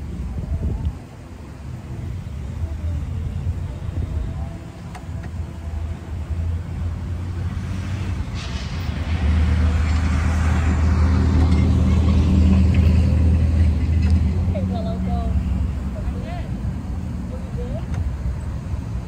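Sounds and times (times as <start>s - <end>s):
road traffic rumble: 0.0s - 19.0s
vehicle passing: 5.6s - 19.0s.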